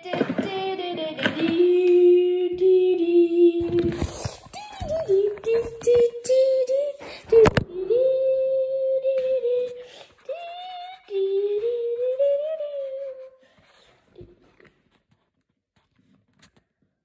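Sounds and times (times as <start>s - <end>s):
child humming: 0.0s - 13.5s.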